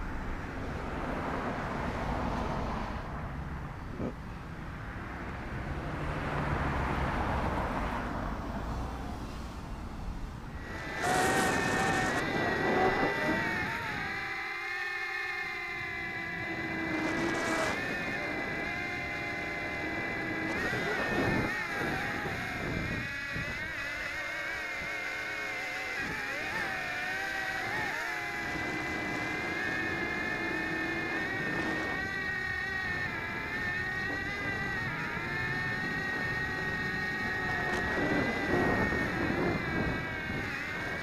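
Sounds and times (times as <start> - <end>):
drone propellers whining: 0.0 - 41.0
wind noise rushes: 10.6 - 14.4, 15.8 - 23.9, 27.5 - 41.0.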